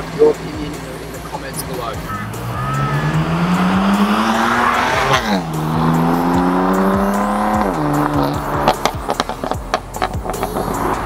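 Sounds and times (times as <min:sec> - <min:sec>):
car engine accelerating hard: 0:00.0 - 0:11.0.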